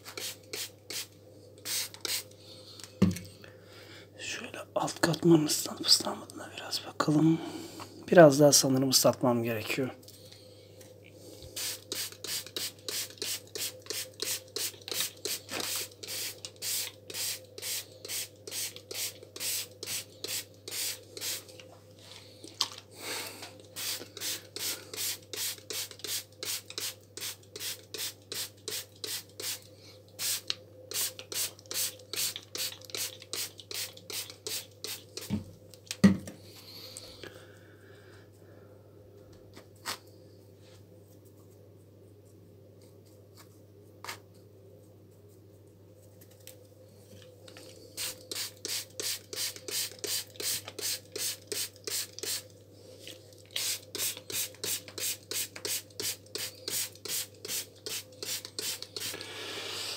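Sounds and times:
spray bottle squirts: 0.1 - 2.2, 11.6 - 21.4, 30.2 - 35.3.

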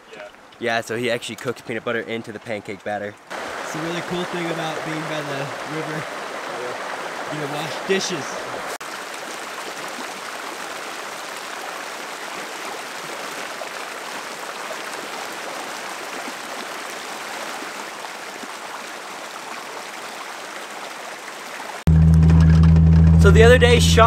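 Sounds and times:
river flowing over rocks: 3.3 - 21.8.

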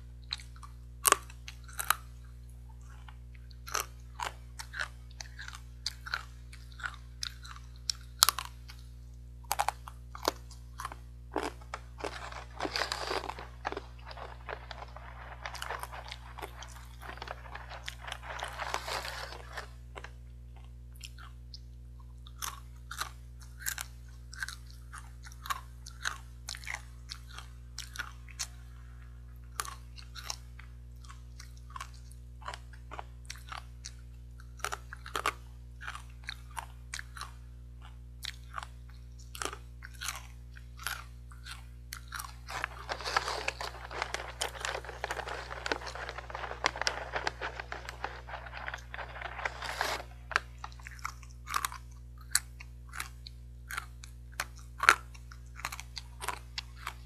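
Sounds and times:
crunching and chewing fried snacks: 0.0 - 57.0
foil snack bag crinkling: 10.2 - 20.1, 42.1 - 51.8.

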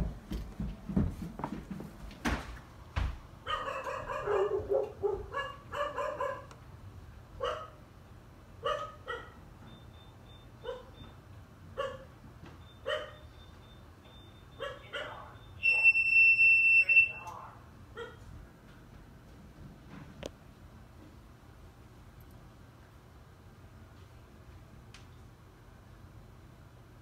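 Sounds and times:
dog barking: 3.4 - 6.5, 7.4 - 7.8, 8.6 - 9.4, 10.6 - 11.0, 11.8 - 12.1, 12.8 - 13.3, 14.6 - 15.4, 18.0 - 18.2
faint high beep: 15.3 - 17.4.

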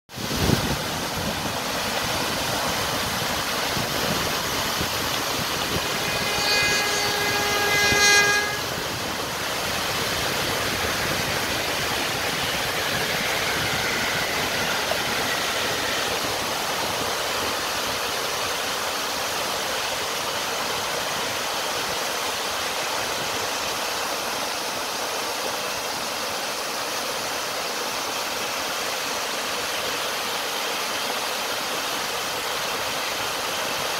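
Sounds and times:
water rushing into basin: 0.1 - 33.9
steady horn-like tone: 0.2 - 18.5.

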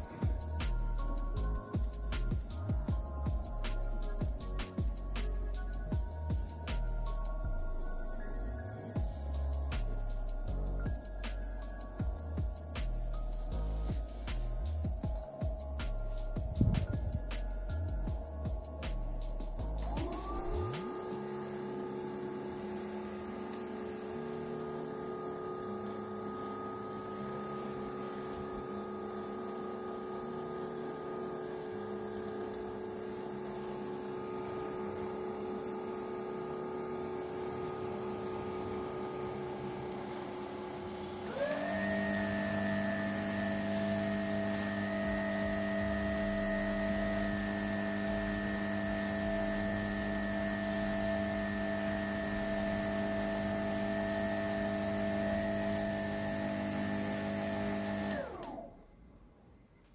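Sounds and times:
electric motor whining: 0.0 - 58.8.

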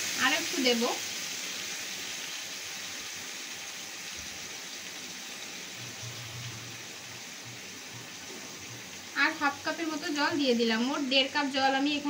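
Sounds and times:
meat sizzling and bubbling in pan: 0.0 - 12.0.

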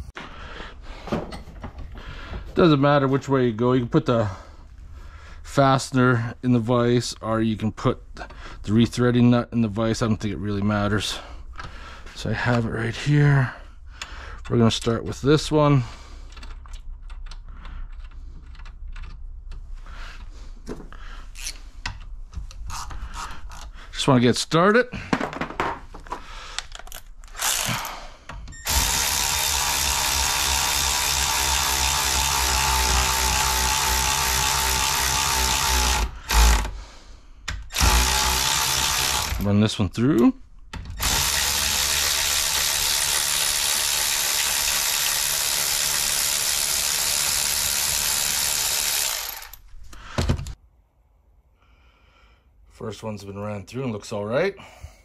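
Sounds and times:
tool handling knocks: 25.0 - 26.2
electric ratchet running: 27.3 - 28.0, 28.6 - 36.8, 37.6 - 39.5, 41.0 - 49.6.

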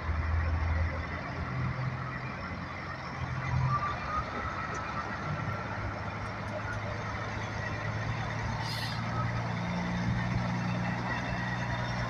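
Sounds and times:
diesel truck engine running: 0.0 - 12.0.

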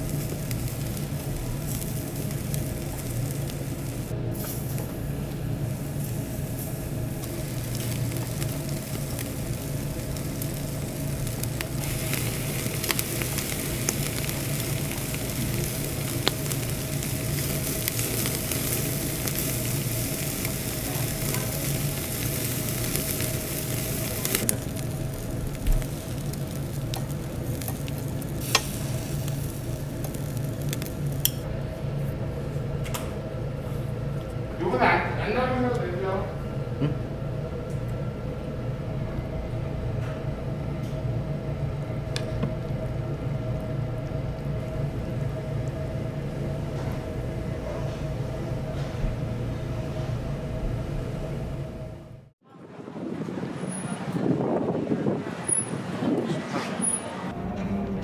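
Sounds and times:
chicken sizzling over charcoal: 0.0 - 31.5, 41.6 - 52.0
steady low hum: 0.0 - 58.0.

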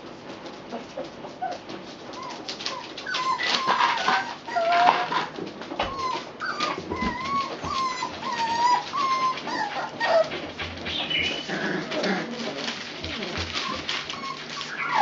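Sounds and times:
puppies whimpering: 0.7 - 15.0
newspaper rustling: 2.3 - 15.0.

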